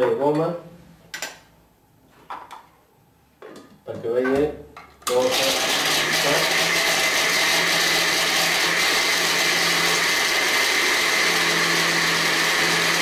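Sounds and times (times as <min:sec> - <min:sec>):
blender motor whining: 0:05.1 - 0:13.0.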